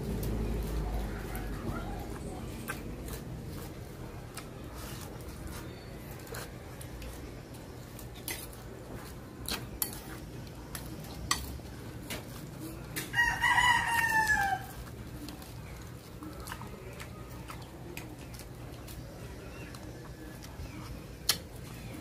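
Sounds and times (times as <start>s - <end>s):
rooster crowing: 0.8s - 2.1s, 13.1s - 14.8s.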